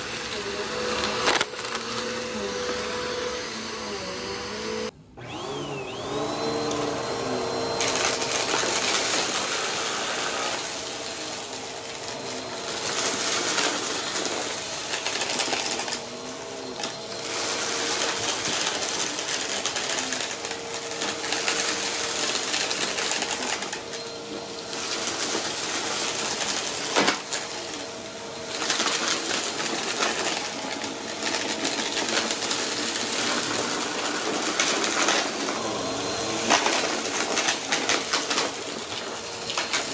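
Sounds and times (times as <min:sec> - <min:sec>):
vacuum cleaner motor whine: 0:00.0 - 0:39.9.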